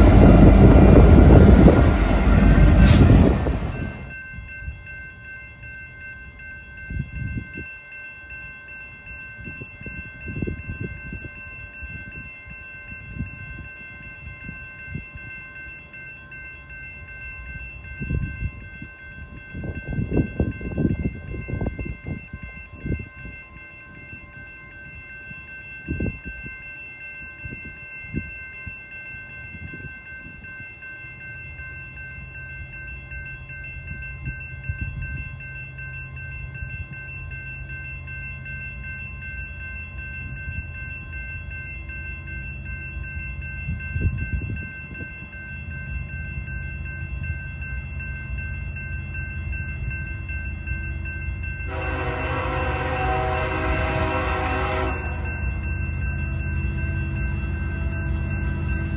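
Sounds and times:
diesel locomotive engine rumble: 0.0 - 5.3, 9.0 - 58.9
train air horn chord: 51.7 - 55.4.

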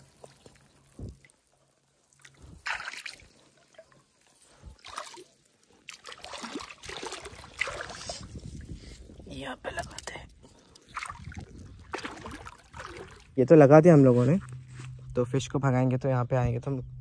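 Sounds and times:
river water splashing: 2.1 - 3.8, 4.8 - 8.2, 10.7 - 13.4.

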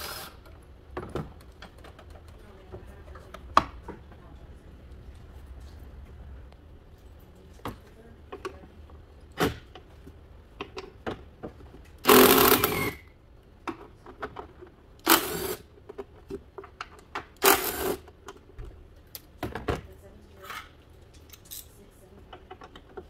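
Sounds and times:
cordless drill spinning: 0.0 - 0.4, 12.0 - 13.0, 15.1 - 15.6, 17.4 - 18.0.

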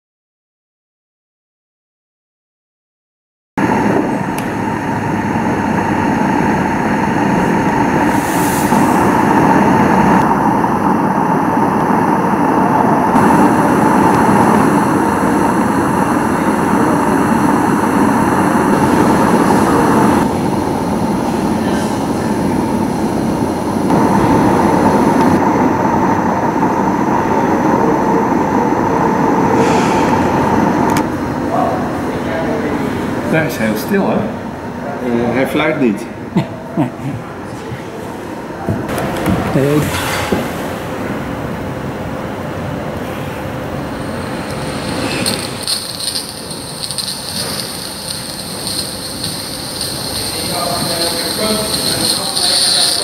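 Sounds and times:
model steam locomotive hissing: 3.8 - 10.6, 13.0 - 25.2, 43.0 - 53.0
steady high tone: 43.6 - 53.0.

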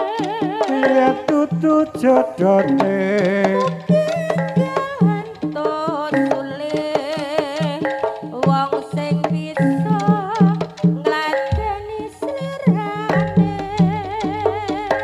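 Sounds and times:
hand drum strokes: 0.0 - 15.0
wavering high melody: 11.5 - 15.0.

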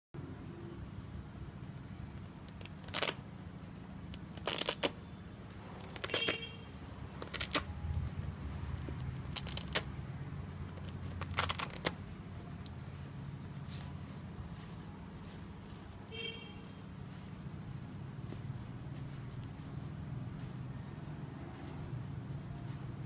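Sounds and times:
velcro ripping: 2.4 - 3.2, 4.2 - 5.0, 5.8 - 6.4, 7.2 - 7.7, 8.7 - 9.9, 10.7 - 12.0.

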